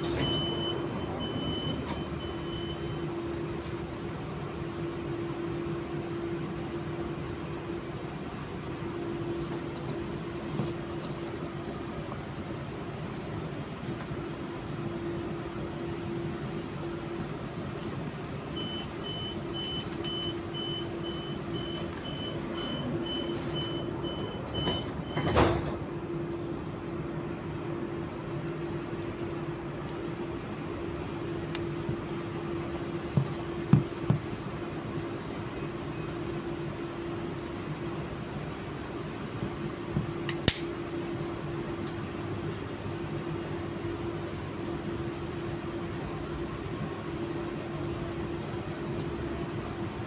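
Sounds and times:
door warning beeps: 0.0 - 3.1, 18.6 - 25.5.

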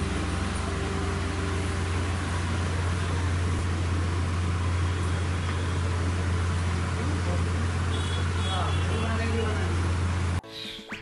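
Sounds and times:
steady rushing noise: 0.0 - 7.7
low hum: 0.0 - 8.5.

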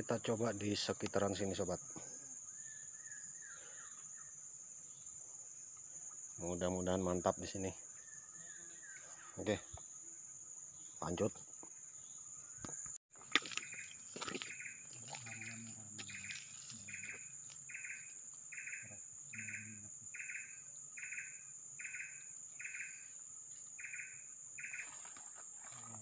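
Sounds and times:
insects droning: 0.0 - 26.0
repeated chirping call: 13.5 - 23.1, 23.8 - 25.0.

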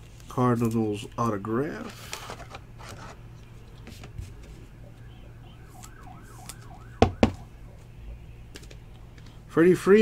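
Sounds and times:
steady low hum: 0.0 - 10.0
distant siren yelp: 4.4 - 8.6.

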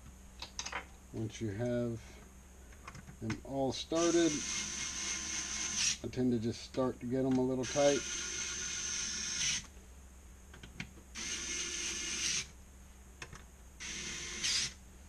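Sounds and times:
electric screwdriver whirring: 4.0 - 6.0, 7.6 - 9.7, 11.2 - 12.5, 13.8 - 14.8.

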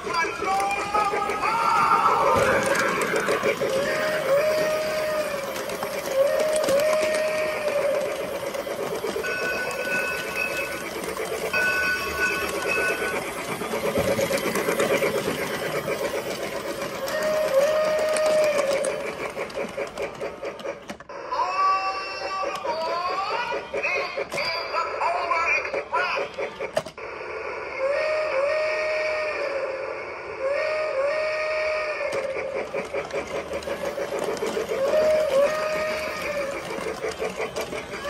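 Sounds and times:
toy train whistle: 0.0 - 19.3, 27.7 - 32.9, 33.6 - 38.0
toy train clattering: 0.0 - 27.0, 30.7 - 38.0.

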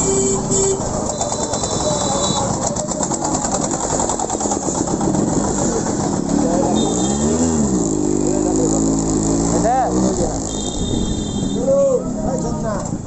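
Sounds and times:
two-stroke engine idling: 0.8 - 6.8.

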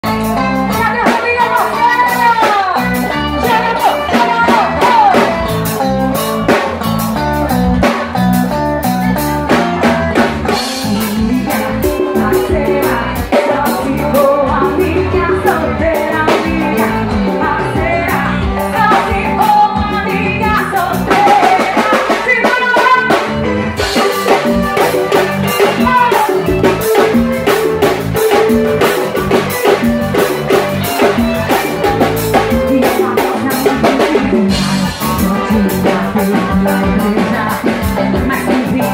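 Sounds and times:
live band dance music: 0.0 - 38.9
woman singing into microphone: 0.1 - 5.5, 10.2 - 24.1, 25.2 - 27.1, 31.1 - 38.9.

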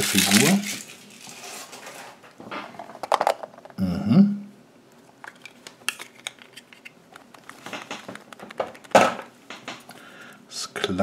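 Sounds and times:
foil wrapper crinkling: 0.0 - 1.9
plastic capsule clatter: 2.8 - 3.8, 5.2 - 9.7.

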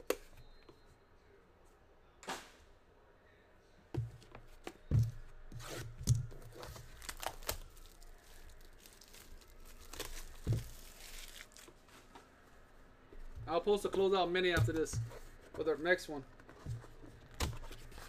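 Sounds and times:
plastic wrap crinkling and tearing: 6.4 - 11.8.

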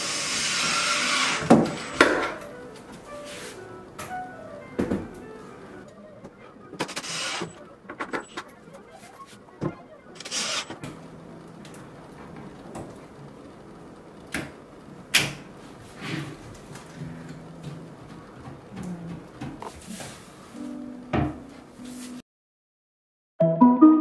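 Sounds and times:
panels scraping along track: 0.0 - 14.9.

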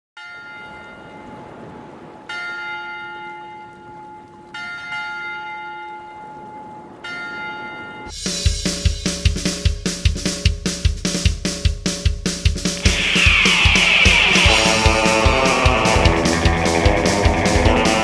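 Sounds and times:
bell ringing: 2.3 - 8.1
music with heavy drum beat: 8.1 - 18.0.

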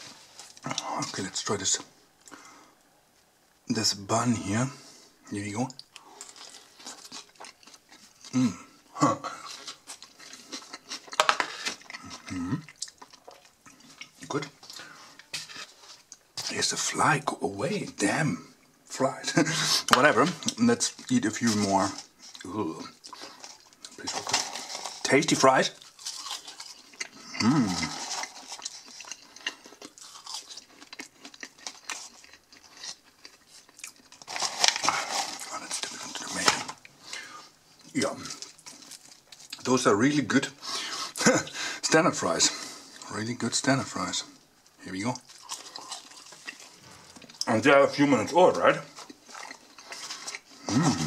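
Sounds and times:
person biting and chewing: 9.4 - 16.2, 25.8 - 39.6, 45.2 - 47.5, 48.9 - 51.0.

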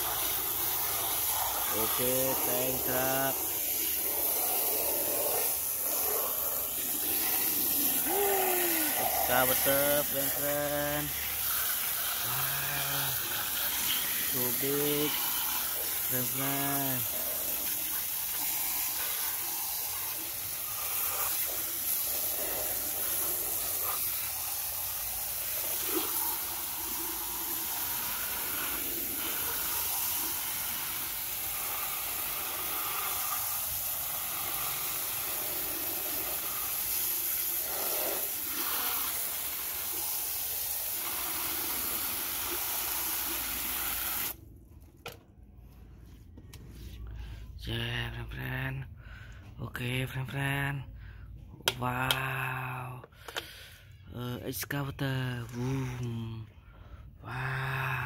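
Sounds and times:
hose spray hissing: 0.0 - 44.4, 55.4 - 56.4.

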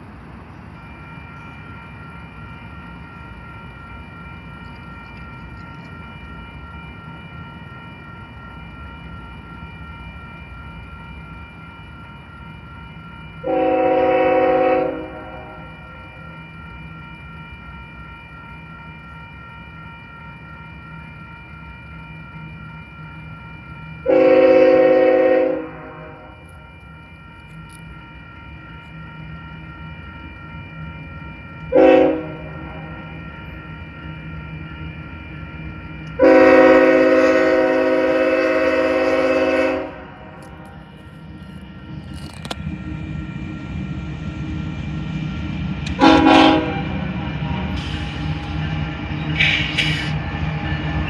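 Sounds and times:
crossing bell ringing: 0.0 - 51.0
train rumble: 0.0 - 51.0
train air horn blasts: 13.4 - 15.6, 24.1 - 26.3, 31.7 - 32.4, 36.2 - 40.2, 46.0 - 47.0.

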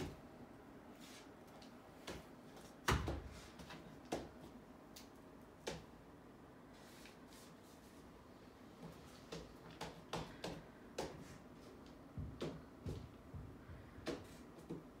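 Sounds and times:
art materials knocking and clicking: 9.3 - 15.0.

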